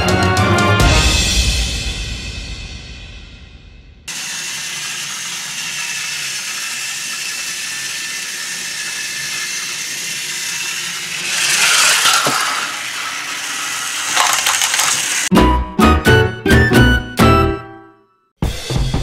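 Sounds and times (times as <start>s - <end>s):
toy train motors whirring: 4.1s - 15.3s.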